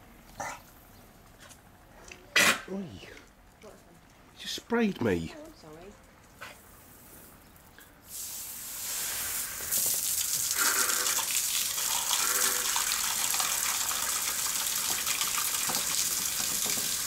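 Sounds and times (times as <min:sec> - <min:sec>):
hose spraying water on tiles: 0:08.0 - 0:17.0.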